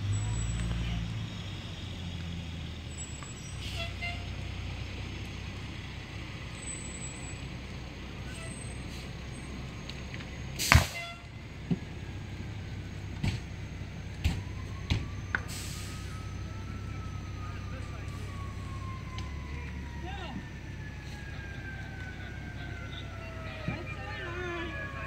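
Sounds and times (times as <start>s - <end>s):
siren: 0.1s - 4.4s, 10.9s - 25.0s
burning car popping: 9.9s - 11.9s.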